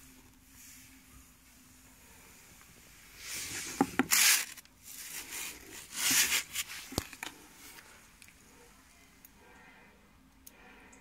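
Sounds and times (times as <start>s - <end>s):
packaging rubbing and rustling: 3.2s - 7.8s.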